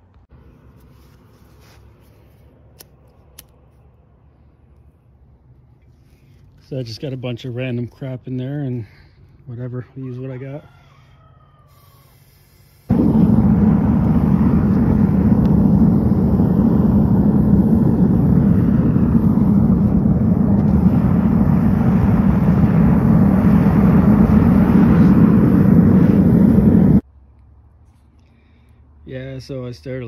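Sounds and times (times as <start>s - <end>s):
gas burner roaring: 12.1s - 27.0s.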